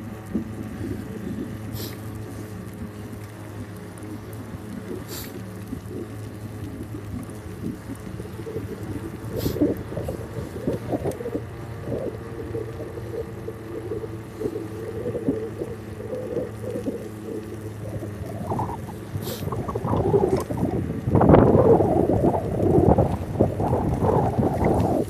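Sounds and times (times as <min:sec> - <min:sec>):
bicycle riding hum: 0:00.0 - 0:25.0
wind buffeting microphone: 0:05.7 - 0:25.0.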